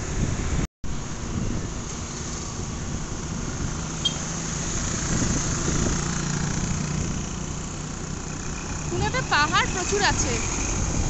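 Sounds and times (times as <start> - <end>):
motorbike engine hum: 0.0 - 11.0
passing traffic: 0.0 - 11.0.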